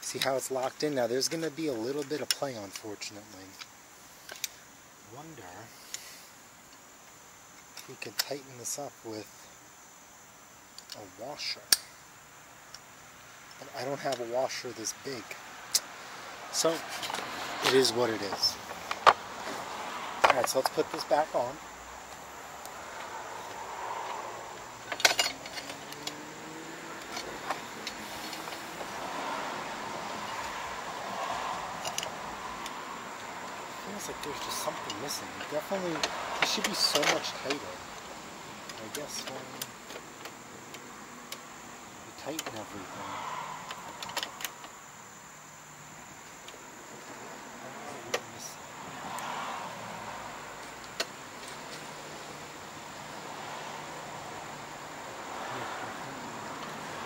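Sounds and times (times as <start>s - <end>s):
high insect trill: 0.0s - 57.0s
metallic clicks and clatter of parts: 24.8s - 26.2s, 27.0s - 28.9s, 31.8s - 32.8s, 34.2s - 37.7s.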